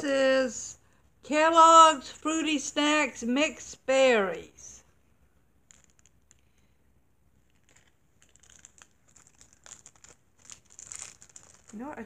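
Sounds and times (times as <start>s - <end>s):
plastic wrapper crinkling: 5.5s - 12.0s.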